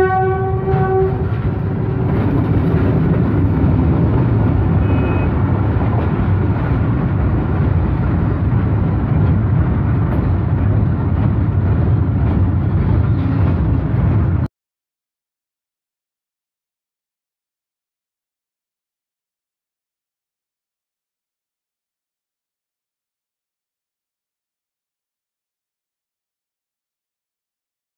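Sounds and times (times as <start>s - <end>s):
train horn: 0.0s - 1.8s, 4.8s - 5.4s
freight train wagons rumbling: 0.0s - 14.5s.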